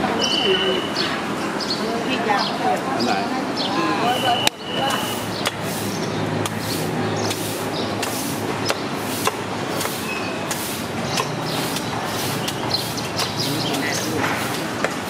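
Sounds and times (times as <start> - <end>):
steady hubbub: 0.0 - 15.0
sharp clicks and taps: 6.4 - 15.0.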